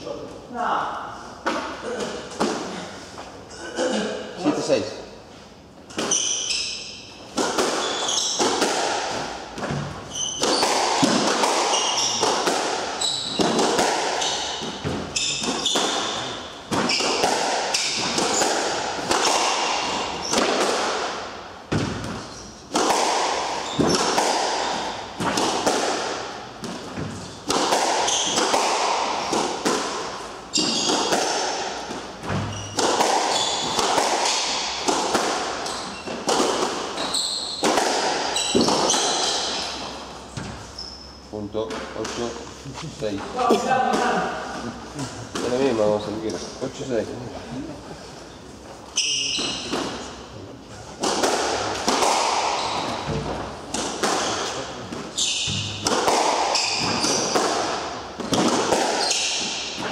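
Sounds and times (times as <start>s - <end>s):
shoes squeaking on wooden floor: 5.9s - 12.3s, 12.9s - 18.6s, 21.7s - 22.7s, 23.5s - 25.2s, 28.0s - 28.4s, 30.4s - 31.2s, 32.0s - 34.4s, 35.6s - 41.3s, 48.2s - 50.1s, 52.4s - 57.5s, 58.2s - 59.9s
squash ball smacks: 7.3s - 37.0s, 37.6s - 39.5s, 51.0s - 59.9s.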